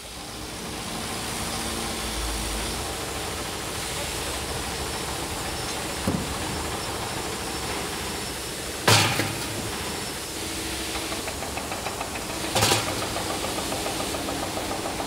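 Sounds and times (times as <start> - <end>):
industrial machinery noise: 0.0 - 15.0
dull knock: 6.0 - 6.4.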